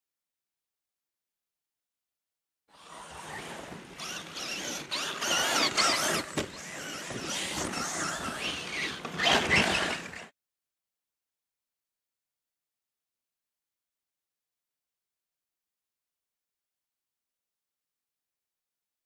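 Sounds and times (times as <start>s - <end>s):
toy truck motor whining: 2.7s - 10.3s.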